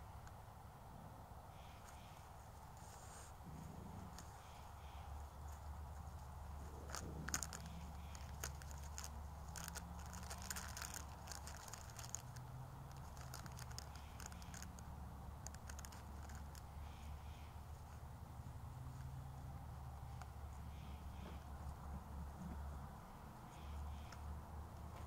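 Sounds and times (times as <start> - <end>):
faint crackles and clicks: 3.6 - 17.2.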